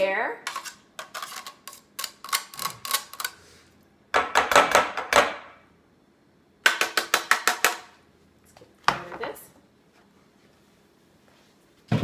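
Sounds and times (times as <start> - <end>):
knife scraping metal grater: 0.5 - 3.2.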